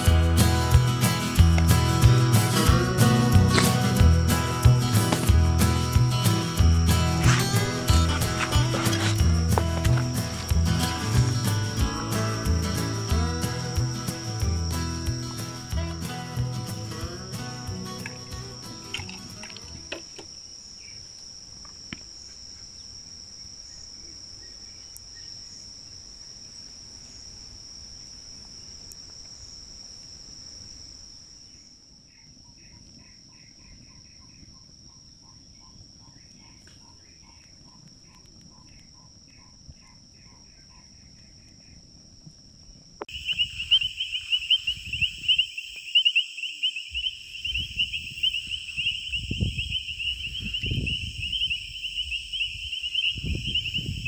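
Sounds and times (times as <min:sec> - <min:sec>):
pulsing cricket trill: 0:00.0 - 0:21.0, 0:43.0 - 0:54.0
insects chirring: 0:00.0 - 0:54.0
repeated insect chirps: 0:00.0 - 0:54.0
handling bumps: 0:03.4 - 0:11.6.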